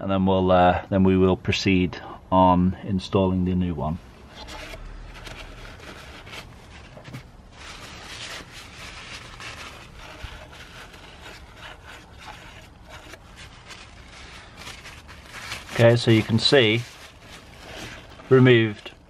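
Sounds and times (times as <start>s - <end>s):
cloth rubbing and scraping: 4.2s - 19.0s.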